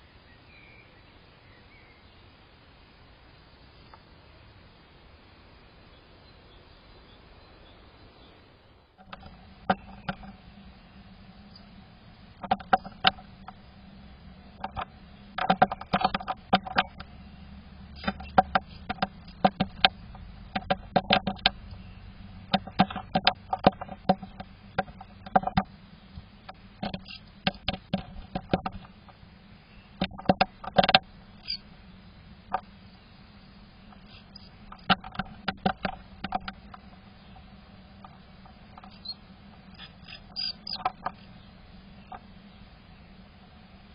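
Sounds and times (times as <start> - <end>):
steady low hum: 0.0 - 43.9
bird tapping on wooden nest box: 9.0 - 10.8, 11.4 - 29.2, 29.9 - 31.6, 32.5 - 32.7, 33.8 - 41.4.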